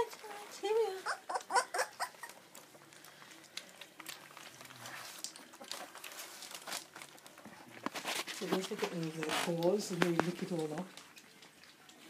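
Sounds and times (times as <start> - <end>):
puppies lapping milk: 0.0 - 12.0
squeaky puppy yips: 1.0 - 2.3.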